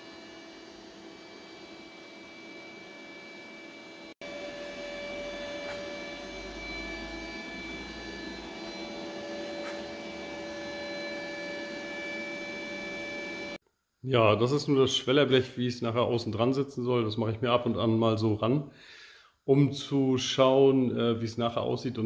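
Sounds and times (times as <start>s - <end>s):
machine hum with high whine: 0.0s - 13.6s.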